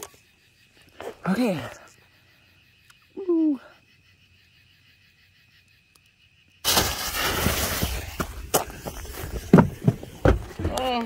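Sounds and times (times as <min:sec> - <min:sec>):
hissing rush of firework sparks: 0:06.6 - 0:08.5
firework cracks: 0:06.6 - 0:08.7.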